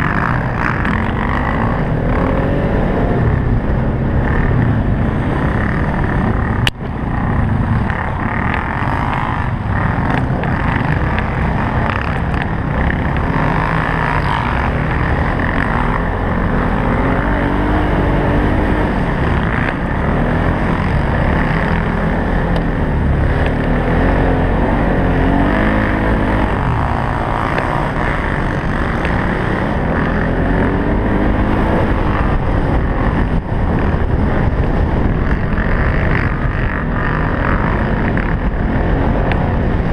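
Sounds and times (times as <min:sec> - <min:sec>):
quad bike engine revving: 0:00.0 - 0:39.9
rumble and rattle of ride: 0:00.0 - 0:39.9.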